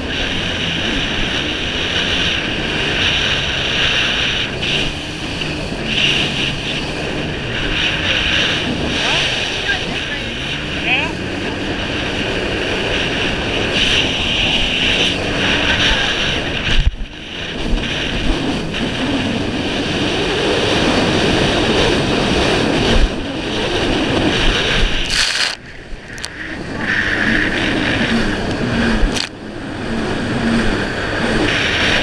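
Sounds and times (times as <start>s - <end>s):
jet ski engine running: 0.0s - 32.0s
water spray rushing: 25.0s - 25.6s.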